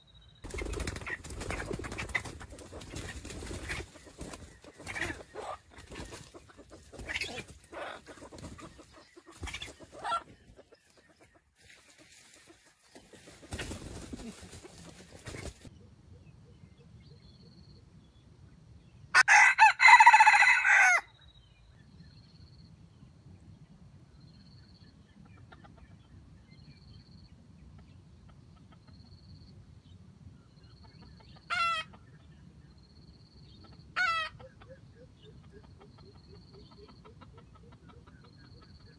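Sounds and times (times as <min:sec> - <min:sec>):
rooster crowing: 0:19.2 - 0:21.1.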